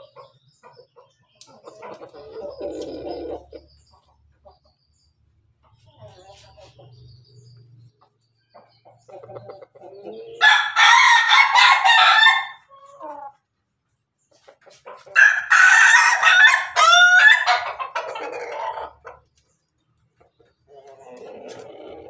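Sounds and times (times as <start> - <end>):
chicken clucking: 0.0 - 22.0
rooster crowing: 10.4 - 12.7, 15.2 - 17.8.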